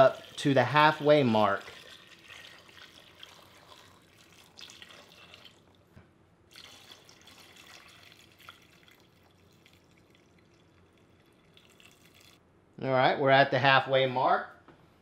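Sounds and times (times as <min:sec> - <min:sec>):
water pouring into metal pot: 0:00.0 - 0:05.7, 0:06.5 - 0:12.4.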